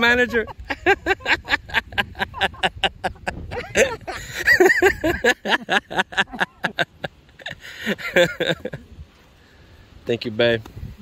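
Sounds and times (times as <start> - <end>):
people talking and chuckling: 0.0 - 9.0
laugh-like syllables: 0.1 - 8.9.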